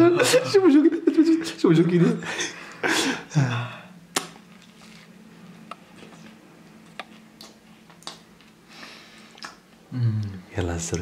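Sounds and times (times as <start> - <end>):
mouth clicks and smacks: 4.1 - 4.8, 6.9 - 8.6, 9.3 - 9.8
person chewing food: 4.1 - 9.8.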